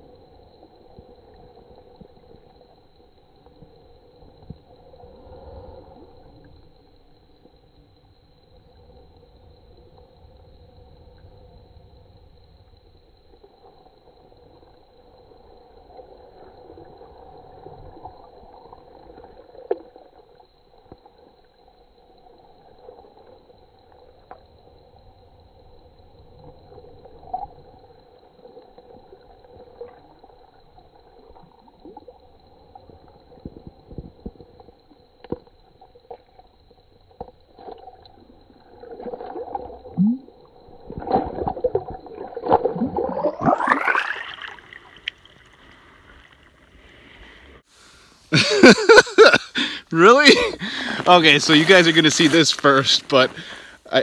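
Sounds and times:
water sloshing and gurgling: 0.0 - 47.7, 48.5 - 53.9
fish splashing in water: 38.8 - 47.0.

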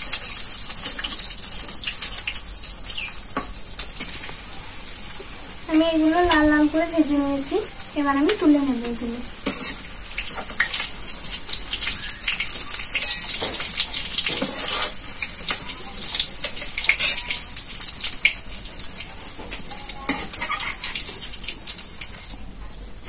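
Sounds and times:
food sizzling in hot oil: 0.0 - 23.0
metal spatula scraping wok: 9.4 - 10.5, 12.9 - 15.0, 20.1 - 21.2.

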